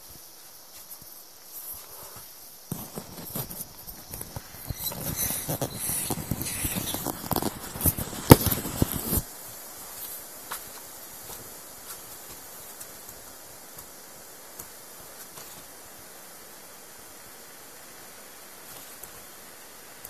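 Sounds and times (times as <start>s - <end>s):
vinyl rubbing and crackling: 0.0s - 9.3s
sharp vinyl snap: 4.8s - 9.2s.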